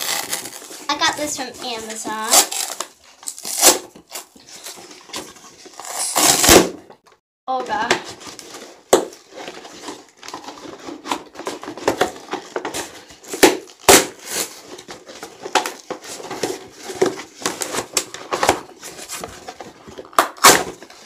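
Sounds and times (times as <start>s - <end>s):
cardboard box tearing: 0.0s - 6.8s, 8.1s - 21.0s.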